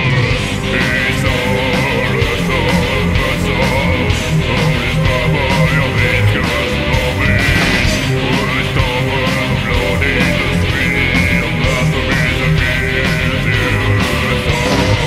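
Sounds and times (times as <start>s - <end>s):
distorted electric guitars: 0.0s - 15.0s
drum hits: 7.2s - 8.5s.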